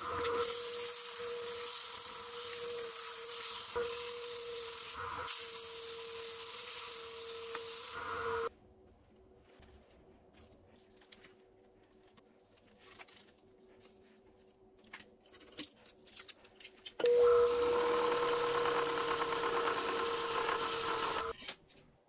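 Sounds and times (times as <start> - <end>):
woodworking power tool running: 0.0 - 8.5, 17.0 - 21.3.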